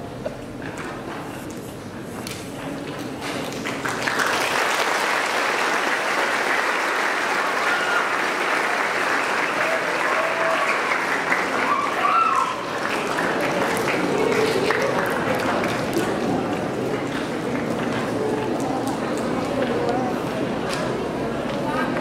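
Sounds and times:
audience applauding: 3.4 - 18.2.

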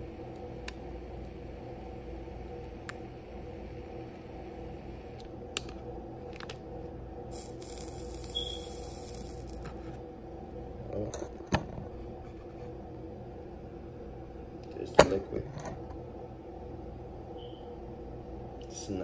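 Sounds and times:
steady low hum: 0.0 - 19.0
short hiss: 7.4 - 9.6.

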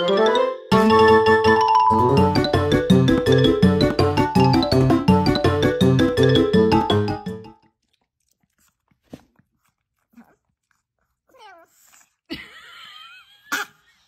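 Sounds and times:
dog crunching dry food: 7.6 - 11.2
dog whining vocal sounds: 8.6 - 12.3.

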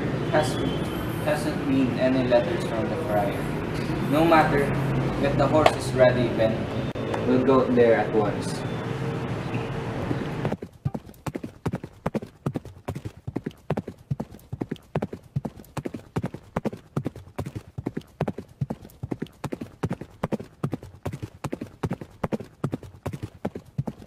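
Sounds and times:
horses' hooves galloping: 9.9 - 24.0.

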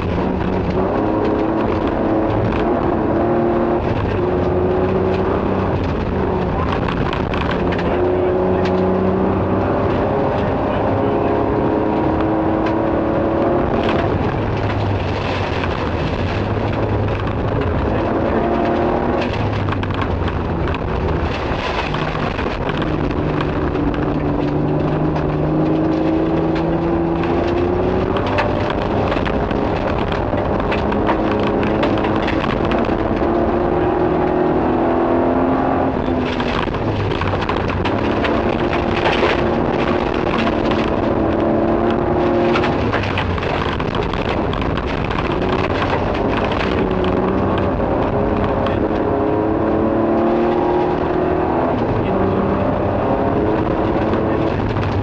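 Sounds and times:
rally car engine accelerating: 0.0 - 55.0
tyre and gravel noise: 0.0 - 55.0
clattering clicks: 13.4 - 34.4.

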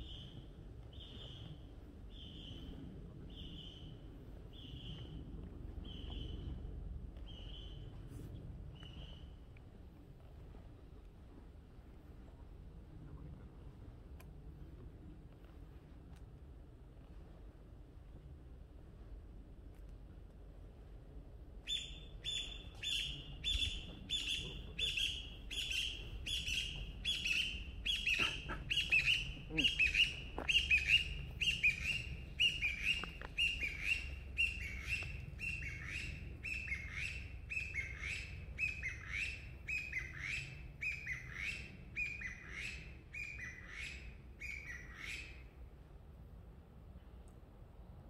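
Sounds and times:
animal high call: 24.2 - 35.0.

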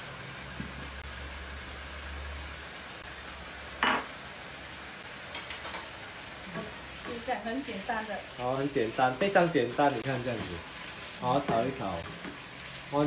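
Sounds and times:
food sizzling in a frying pan: 0.0 - 13.0
plate clinking on counter: 3.8 - 4.1.

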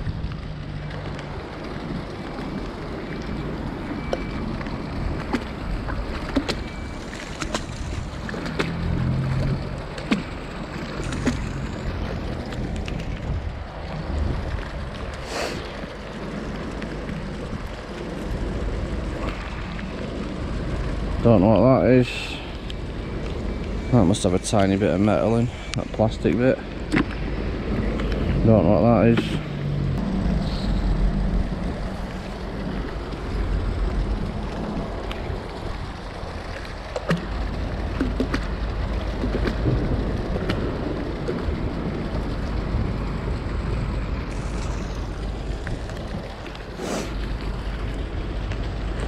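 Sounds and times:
wind buffeting microphone: 0.0 - 22.1
rain hiss: 0.0 - 49.0
wind rumbling on microphone: 0.0 - 49.0.

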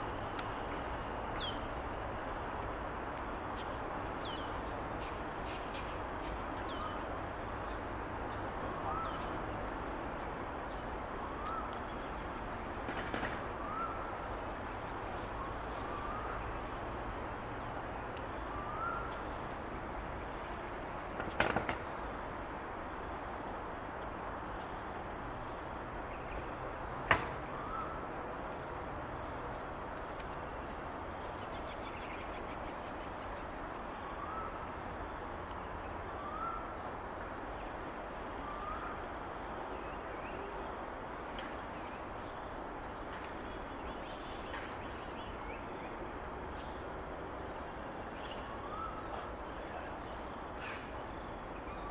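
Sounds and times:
high insect drone: 0.0 - 51.9
faint bird chirps: 15.2 - 16.6, 18.4 - 19.2, 47.6 - 51.0.

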